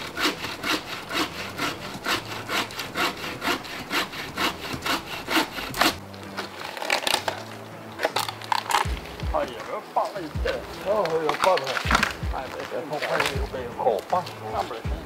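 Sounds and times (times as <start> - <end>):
hand saw rasping through branch: 0.0 - 7.2, 10.8 - 14.8.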